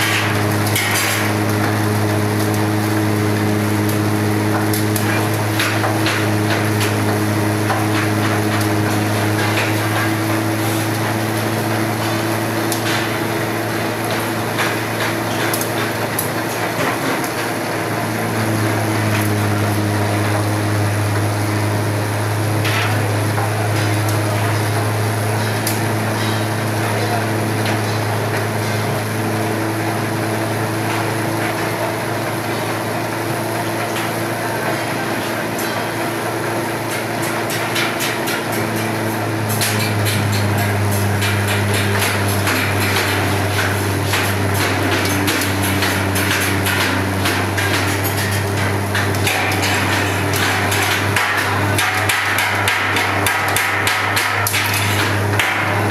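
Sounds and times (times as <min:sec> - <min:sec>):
waste shredder humming: 0:00.0 - 0:55.9
crackling and clattering pieces: 0:39.5 - 0:55.9.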